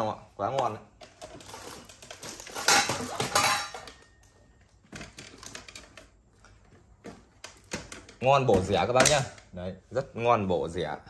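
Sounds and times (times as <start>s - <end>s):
metal cookware and lids clattering: 1.1s - 4.3s.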